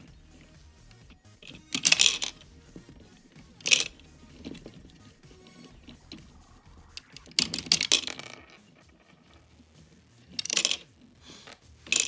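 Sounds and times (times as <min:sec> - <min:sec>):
plastic toy rattling clicks: 0:01.4 - 0:02.5, 0:03.6 - 0:04.8, 0:07.0 - 0:08.6, 0:10.3 - 0:10.9
small plastic pieces dropping: 0:01.4 - 0:02.9, 0:03.5 - 0:06.2, 0:07.0 - 0:09.4, 0:10.3 - 0:11.0.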